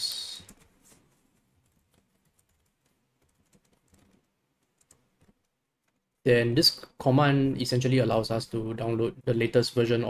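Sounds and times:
keyboard typing: 0:01.6 - 0:06.0.

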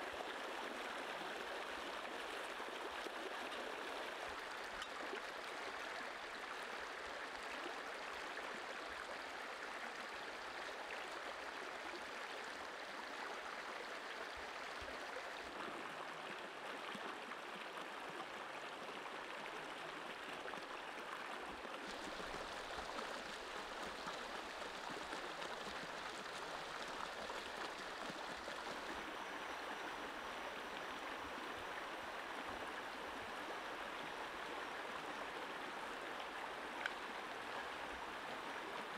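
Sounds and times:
stream water flowing over stones: 0:00.0 - 0:38.9.

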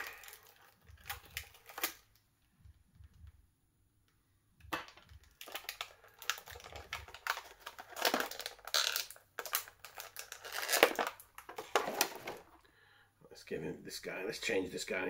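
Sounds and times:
plastic packaging crinkling: 0:00.0 - 0:02.2, 0:04.8 - 0:12.6.

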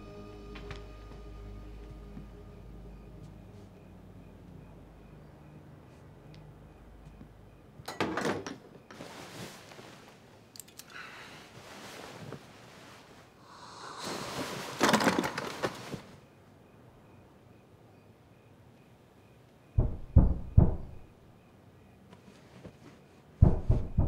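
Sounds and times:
bedsheets and blankets rustling: 0:08.8 - 0:10.5, 0:11.1 - 0:16.4, 0:22.1 - 0:23.9.

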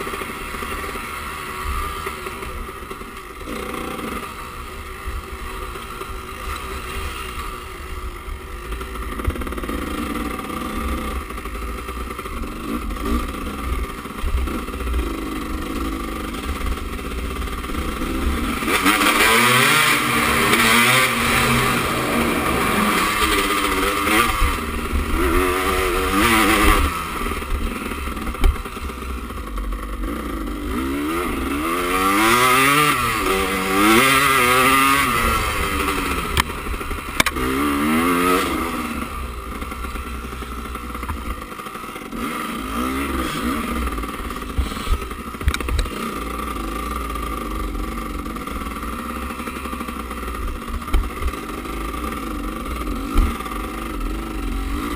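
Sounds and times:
dirt bike engine revving: 0:03.4 - 0:04.8, 0:12.2 - 0:54.9.

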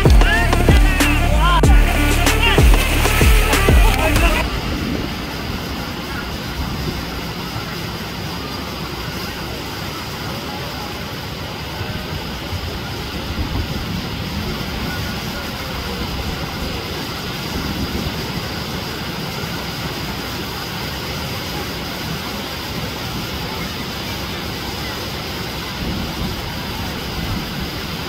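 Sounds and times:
surf breaking: 0:00.0 - 0:28.0
wind on microphone: 0:02.6 - 0:08.1, 0:25.7 - 0:28.0.

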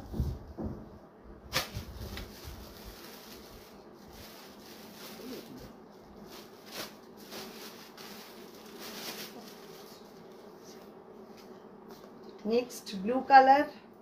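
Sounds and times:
faint steady hum: 0:00.0 - 0:14.0
fabric rustling: 0:01.5 - 0:11.5.

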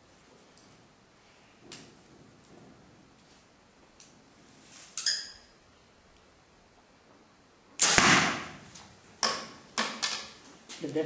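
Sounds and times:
arrows striking foam target: 0:07.8 - 0:10.0.

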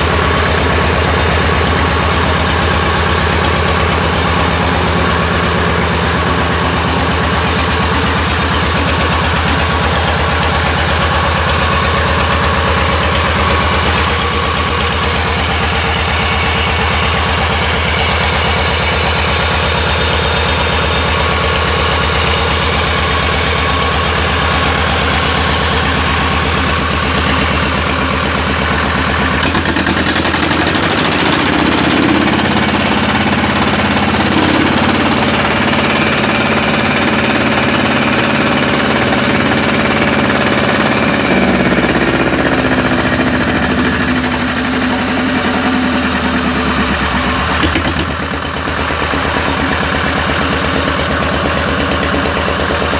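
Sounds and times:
diesel tractor engine running: 0:00.0 - 0:52.9.

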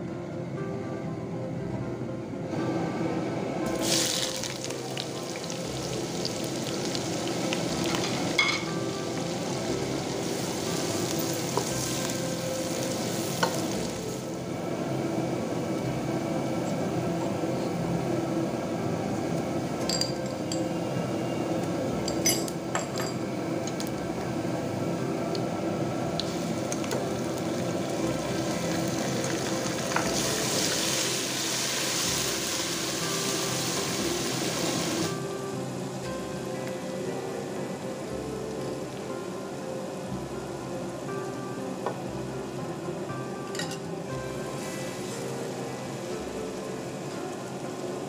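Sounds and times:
onions sizzling in oil: 0:03.7 - 0:17.1, 0:26.0 - 0:39.3, 0:43.6 - 0:48.0.

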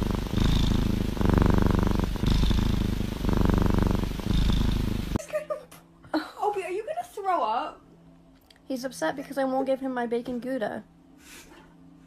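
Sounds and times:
kitten purring: 0:00.0 - 0:05.2.

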